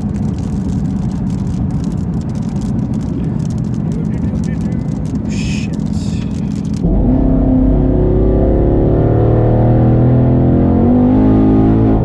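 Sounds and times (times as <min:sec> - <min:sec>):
tyres spinning on wet road: 0:00.0 - 0:06.8
car engine at full throttle: 0:00.0 - 0:12.0.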